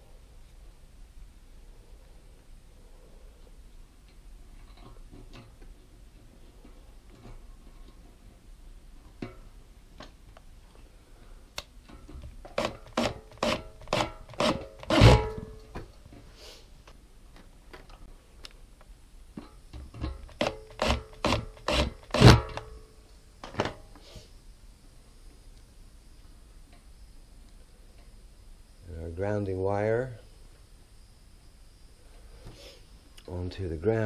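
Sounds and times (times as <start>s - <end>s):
hand tool scraping wire: 12.5s - 15.5s, 20.0s - 22.7s.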